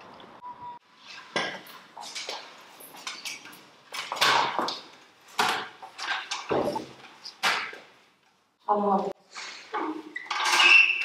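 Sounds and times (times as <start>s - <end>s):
metal scooters clattering on floor: 1.1s - 7.9s, 9.4s - 11.0s.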